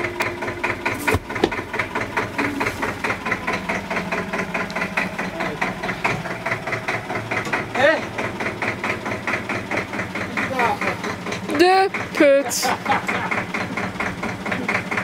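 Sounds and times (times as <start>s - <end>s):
tractor diesel engine chugging: 0.0s - 15.0s
stone slab knock and thud: 0.9s - 1.6s.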